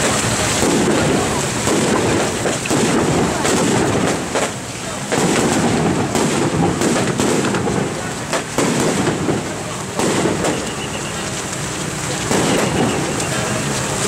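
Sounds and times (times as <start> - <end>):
crowd voices: 0.0 - 14.0
heavy rain on an umbrella: 0.0 - 14.0.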